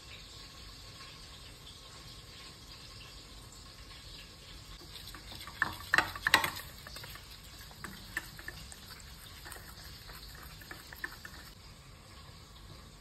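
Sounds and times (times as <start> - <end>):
whisk scraping a saucepan: 4.8 - 11.6.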